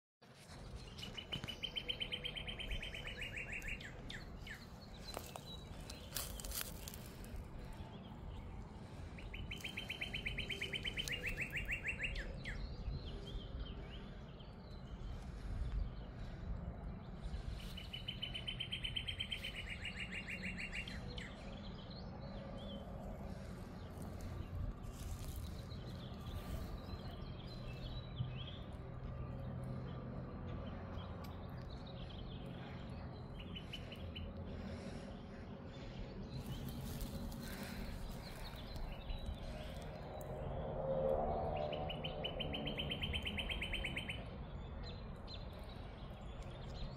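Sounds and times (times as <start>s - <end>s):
songbird trilling: 9.3s - 12.6s.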